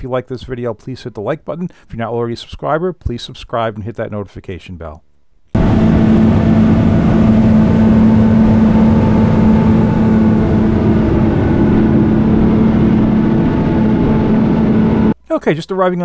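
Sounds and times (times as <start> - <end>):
water rushing along hull: 5.6 - 15.1
outboard boat engines droning: 5.6 - 15.2.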